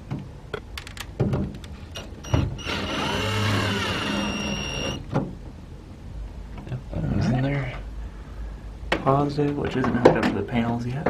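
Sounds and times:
cordless drill whining: 0:02.0 - 0:05.1.

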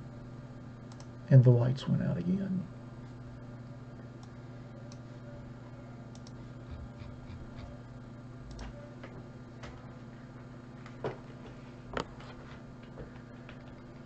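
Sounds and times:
low electrical hum: 0:00.0 - 0:14.0
keyboard and mouse clicks: 0:08.5 - 0:08.8.

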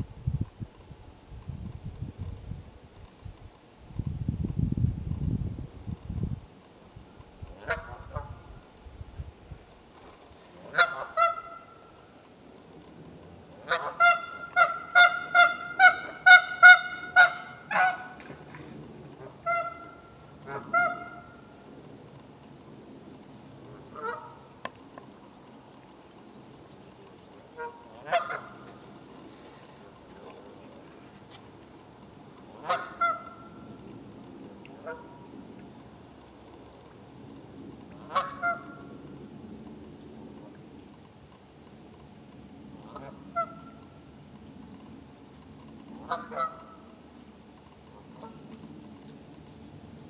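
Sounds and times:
goose honking: 0:07.6 - 0:08.4, 0:10.7 - 0:11.8, 0:13.6 - 0:18.2, 0:19.2 - 0:21.4, 0:23.7 - 0:24.4, 0:27.5 - 0:28.7, 0:32.5 - 0:33.5, 0:34.8 - 0:35.2, 0:38.0 - 0:38.9, 0:42.9 - 0:43.8, 0:46.0 - 0:46.9, 0:48.2 - 0:48.4.

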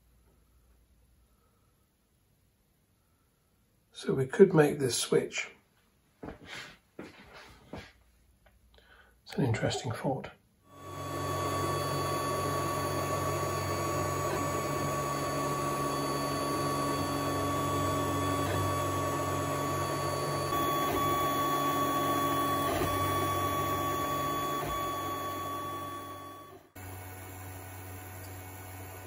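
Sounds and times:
three d printer whirring: 0:10.7 - 0:29.0.

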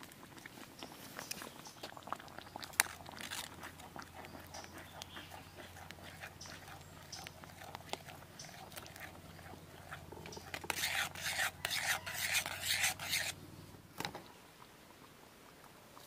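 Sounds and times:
small clicks and crackles: 0:00.0 - 0:10.8
stew bubbling in a pan: 0:00.0 - 0:16.0
spatula scraping a pan: 0:04.3 - 0:13.4.

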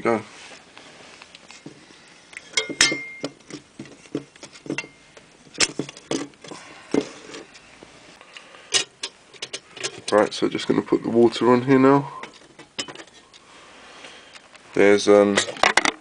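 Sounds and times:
metal pot stand clicking and tapping: 0:02.5 - 0:03.4, 0:08.7 - 0:10.2.

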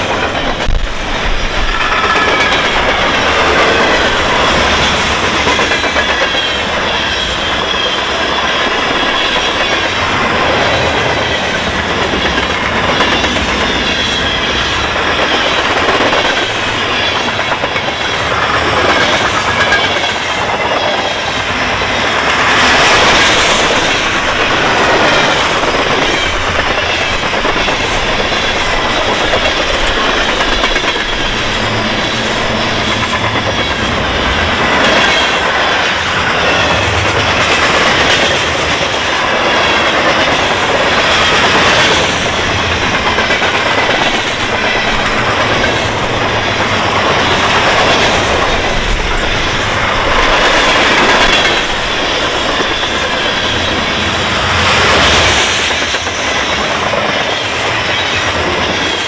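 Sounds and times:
freight cars rolling on rails: 0:00.0 - 0:59.0.

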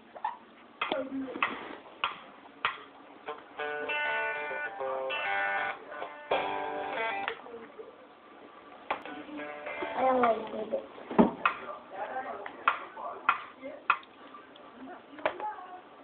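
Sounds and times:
toy guitar strumming: 0:02.6 - 0:07.4, 0:09.0 - 0:10.6.

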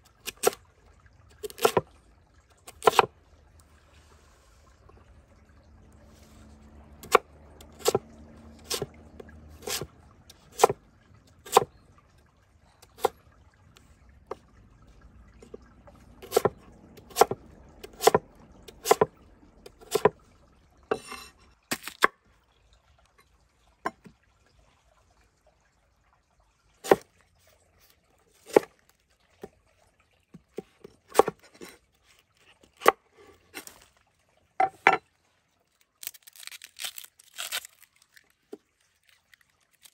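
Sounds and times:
cleaver chopping on wooden board: 0:17.1 - 0:18.2, 0:18.8 - 0:19.1, 0:31.1 - 0:31.3.

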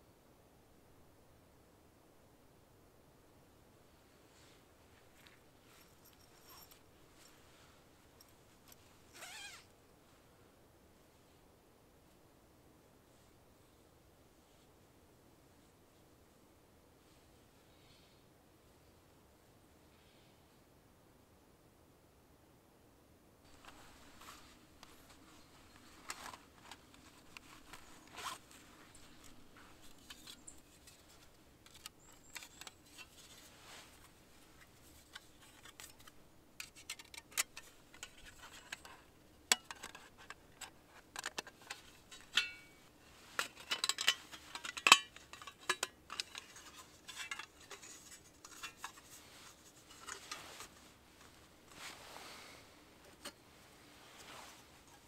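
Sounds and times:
metal plates clinking and scraping: 0:25.7 - 0:33.4, 0:35.0 - 0:50.7.

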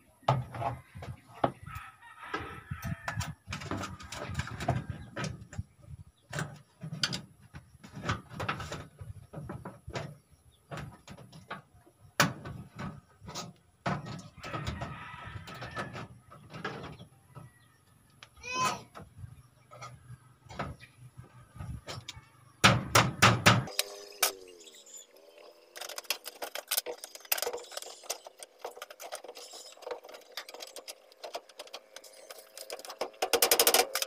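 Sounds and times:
wire scraping against metal bars: 0:23.6 - 0:34.0.

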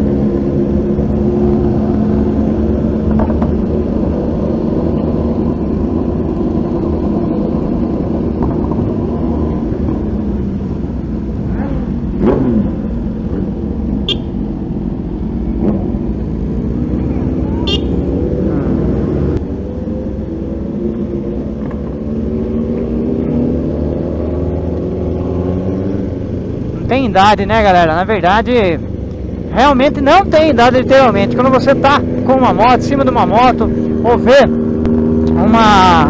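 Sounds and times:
other motorcycle engines: 0:00.0 - 0:36.0
motorcycle engine running: 0:15.4 - 0:18.8.

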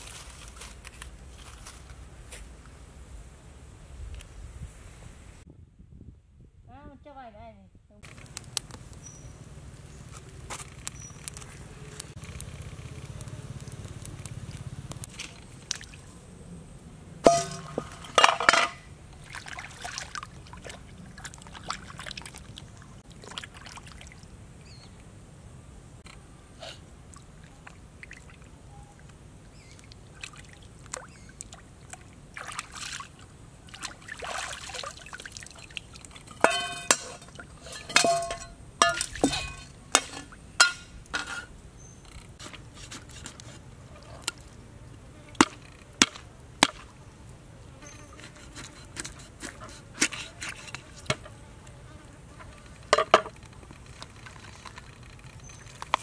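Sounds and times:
water splashing and trickling: 0:10.2 - 0:16.2, 0:17.2 - 0:24.8, 0:27.0 - 0:44.6, 0:52.4 - 0:56.0
water dripping: 0:27.1 - 0:41.2.

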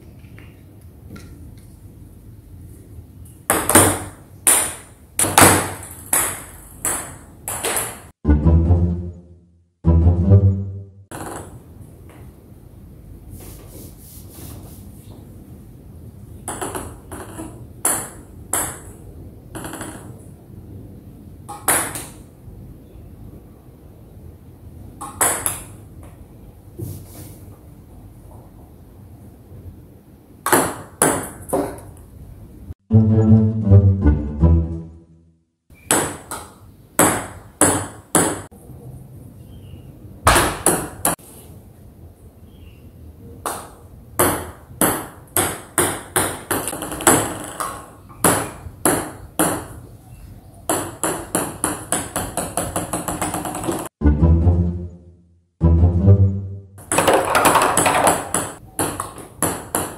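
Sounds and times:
table tennis ball bouncing: 0:03.5 - 0:08.1, 0:11.1 - 0:11.6, 0:16.4 - 0:19.0, 0:19.6 - 0:20.2, 0:21.5 - 0:22.2, 0:25.0 - 0:25.8, 0:30.4 - 0:31.9, 0:35.8 - 0:38.5, 0:43.4 - 0:49.9, 0:50.7 - 0:53.9, 0:56.8 - 0:59.9.

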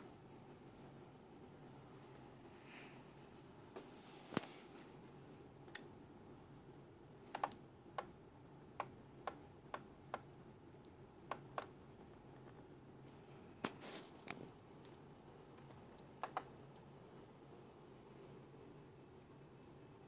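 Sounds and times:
faint steady hiss: 0:00.0 - 0:20.0
laptop control clicks: 0:07.3 - 0:08.1.

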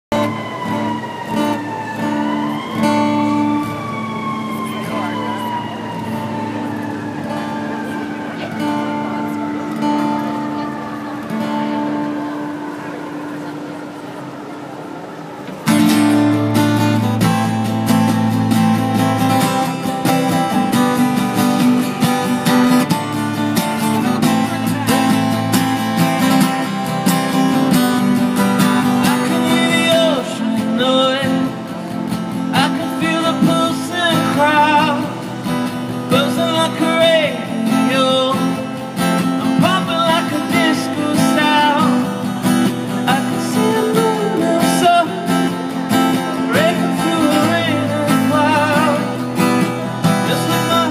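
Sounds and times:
acoustic guitars strumming: 0:06.0 - 0:50.9
man singing: 0:28.6 - 0:31.6, 0:32.4 - 0:35.2, 0:36.0 - 0:42.1, 0:43.0 - 0:45.6, 0:46.4 - 0:50.9.

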